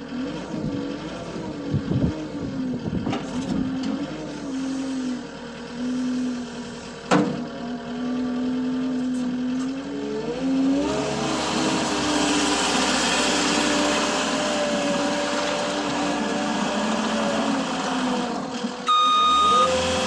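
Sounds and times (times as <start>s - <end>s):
diesel loader engine running: 0.0s - 20.0s
sharp clunk: 7.1s - 7.4s.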